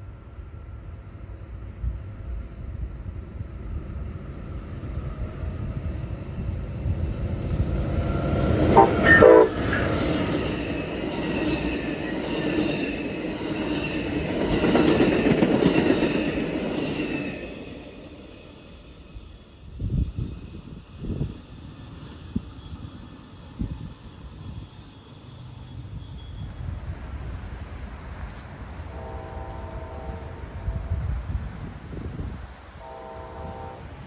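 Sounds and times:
wheel and rail noise: 0.0s - 33.2s
train passing at speed: 0.0s - 34.0s
train horn blast: 8.5s - 10.0s, 28.8s - 31.3s, 32.8s - 34.0s.

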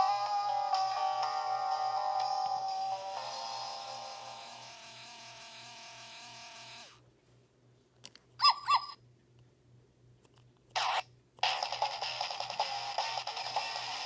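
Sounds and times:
electronic rock riff from toy: 0.0s - 4.6s, 10.8s - 14.0s
electronic yips: 8.4s - 9.0s.

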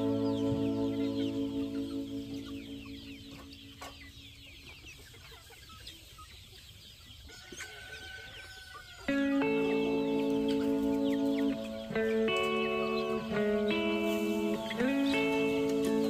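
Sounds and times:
background music: 0.0s - 4.0s, 9.1s - 16.0s
chickens clucking: 0.0s - 16.0s.

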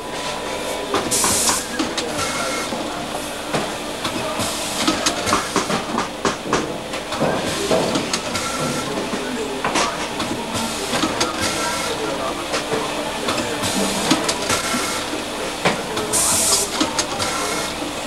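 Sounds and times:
machine hissing: 0.2s - 18.0s
machine clicks and knocks: 3.6s - 11.6s.

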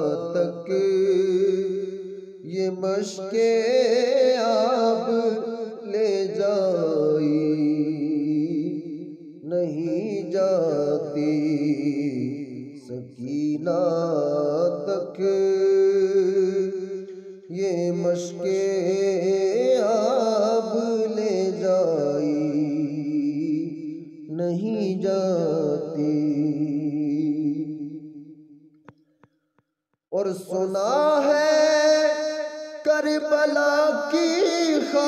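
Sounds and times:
man singing devotional poem: 0.0s - 28.4s, 30.1s - 35.0s.

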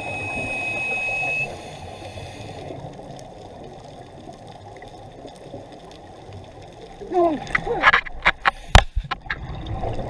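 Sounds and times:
breathing gear whistle: 0.0s - 2.6s
bubbly water hiss: 0.0s - 3.0s.

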